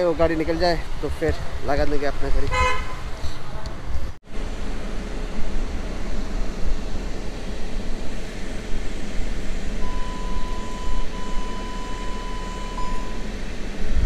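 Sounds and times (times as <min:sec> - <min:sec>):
car engine and cabin hum: 0:03.7 - 0:14.0
parking sensor beep: 0:09.8 - 0:13.3.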